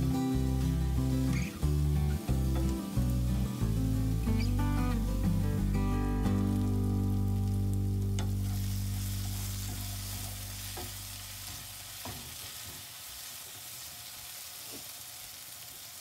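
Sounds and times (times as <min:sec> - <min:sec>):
background music: 0:00.0 - 0:10.7
vegetables sizzling in frying pan: 0:00.0 - 0:16.0.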